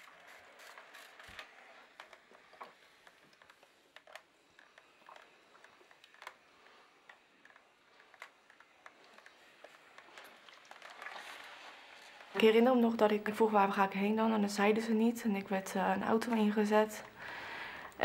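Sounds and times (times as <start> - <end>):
steam iron clicks and rustles: 0.0 - 12.4.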